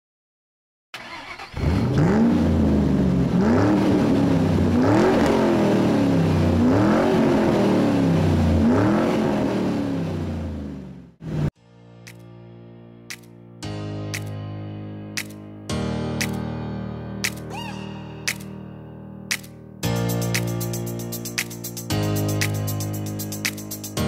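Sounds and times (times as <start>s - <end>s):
engine revving: 1.0s - 11.5s.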